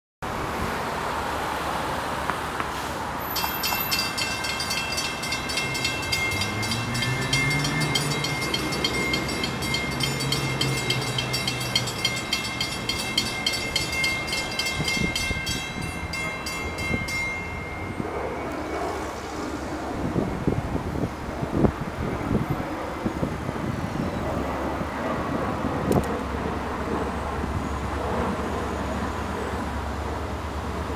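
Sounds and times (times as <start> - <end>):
road traffic noise: 0.2 - 30.9
crossing warning bell ringing: 3.2 - 19.1.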